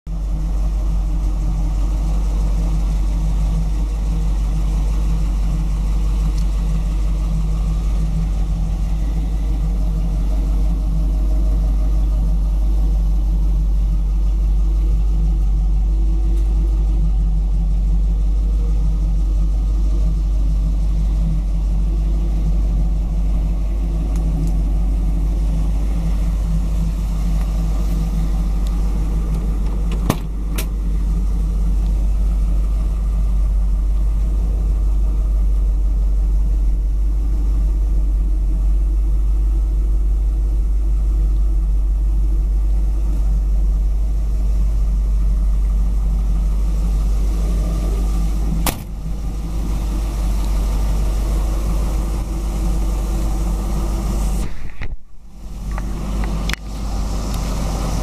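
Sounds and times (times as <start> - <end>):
car engine idling: 0.0 - 58.0.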